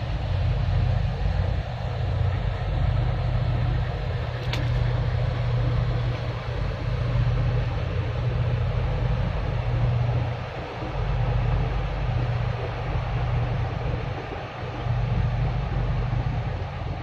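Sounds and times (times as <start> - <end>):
boat diesel engines droning: 0.0 - 17.0
rushing water noise: 0.0 - 17.0.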